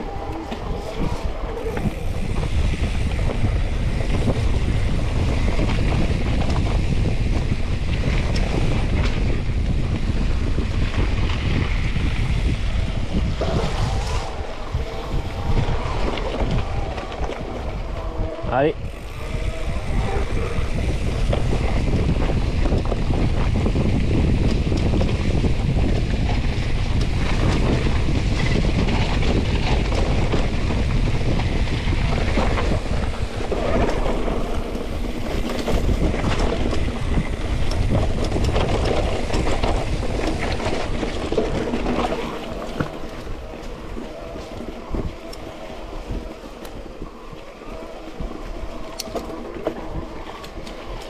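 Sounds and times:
tyre noise: 0.0s - 51.0s
wind buffeting microphone: 0.0s - 51.0s
bike clattering over trail: 18.8s - 46.9s.

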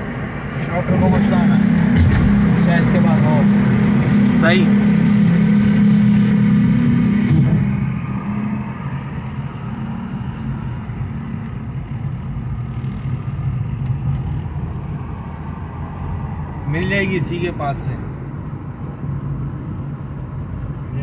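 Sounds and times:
car engine drone: 0.0s - 21.0s.

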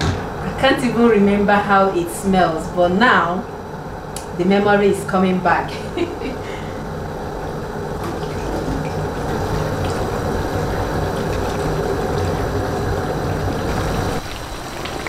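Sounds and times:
tap water running into jug: 8.0s - 15.0s.

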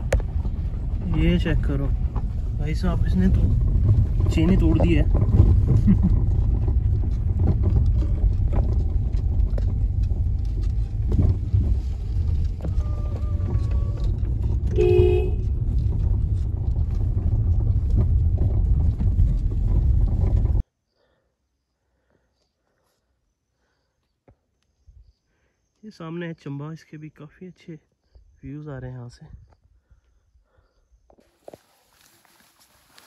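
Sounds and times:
vehicle rumbling on rough track: 0.0s - 20.7s, 25.9s - 33.0s
horn toot: 14.7s - 15.5s.

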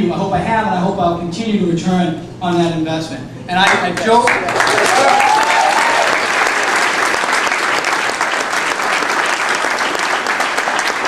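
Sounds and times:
audience applauding: 3.7s - 11.0s.

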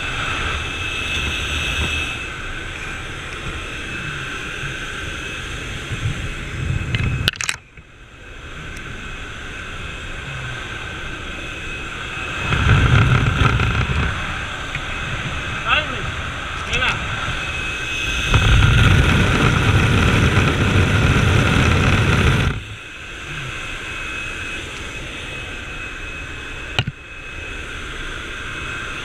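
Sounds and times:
propeller plane engine: 0.0s - 29.0s
airflow through open door: 8.0s - 29.0s.

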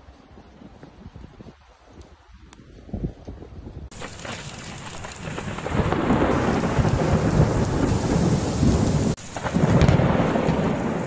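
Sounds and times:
deep rolling thunder: 3.9s - 11.0s
heavy rain: 3.9s - 11.0s.

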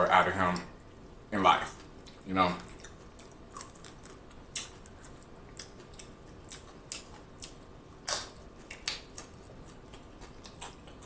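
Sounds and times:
chip crunch: 2.1s - 11.0s
tortilla chips crackling: 2.5s - 11.0s.

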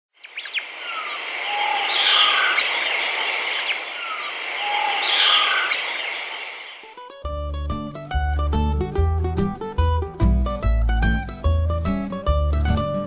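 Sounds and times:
birds calling: 0.1s - 6.9s
steady hiss: 0.2s - 6.9s.

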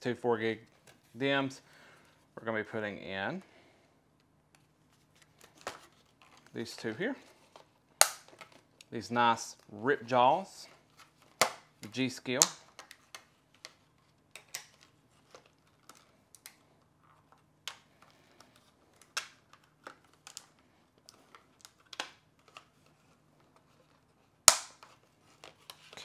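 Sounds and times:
plastic packaging clicking and crackling: 5.1s - 9.0s, 10.7s - 26.0s
plastic snap: 8.0s - 8.6s, 24.5s - 24.9s.

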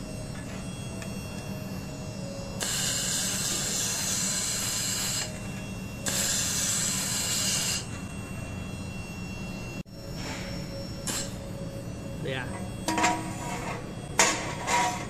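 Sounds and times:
machine hum: 0.0s - 15.0s
laser welder hissing: 2.6s - 5.4s, 6.0s - 7.9s, 11.0s - 11.4s.

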